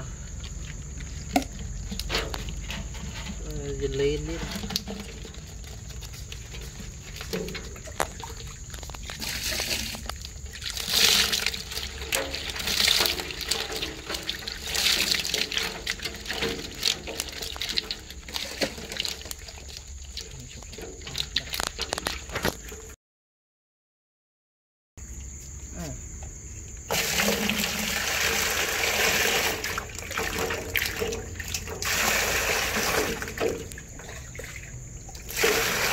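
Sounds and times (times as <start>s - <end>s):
fish splashing in water: 3.9s - 23.0s, 26.9s - 35.9s.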